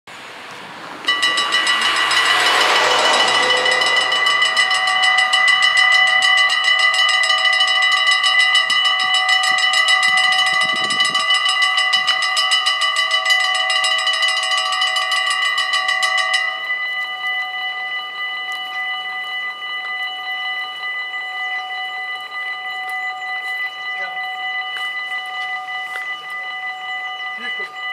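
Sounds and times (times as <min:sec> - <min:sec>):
level-crossing bells ringing: 0:00.9 - 0:27.9.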